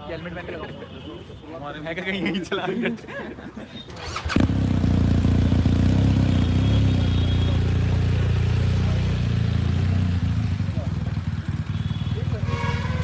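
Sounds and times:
motorcycle engine starting and idling: 3.8 - 12.7.

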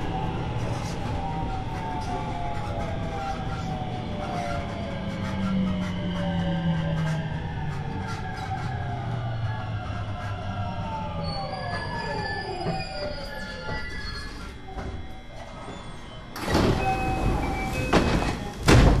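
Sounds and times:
train inverter whining: 0.0 - 19.0
door clunk: 16.4 - 19.0.

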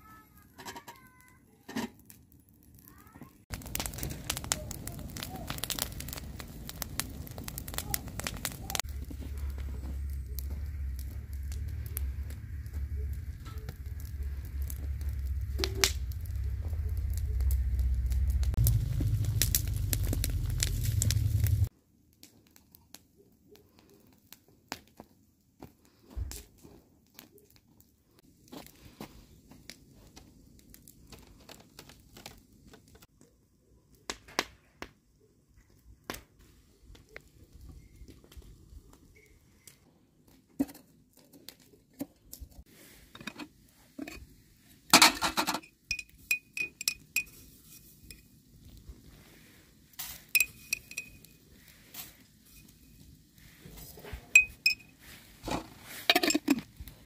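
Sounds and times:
dishes and utensils clinking: 56.0 - 56.6.

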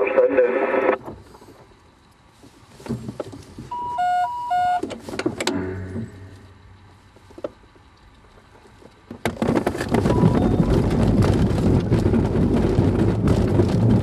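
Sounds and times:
glider wheel rumbling over grass: 5.0 - 14.0
sudden jolt: 9.3 - 14.0.

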